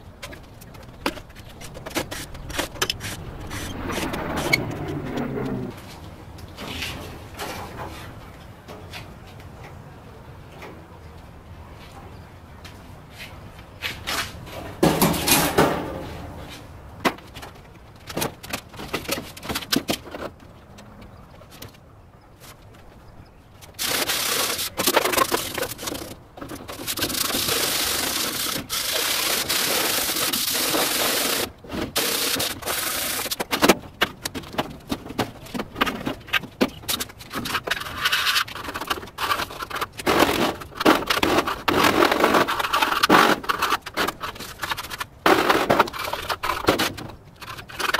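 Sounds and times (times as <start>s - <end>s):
rough metal scraping: 1.2s - 6.0s
metal grill parts clanking: 14.7s - 16.3s.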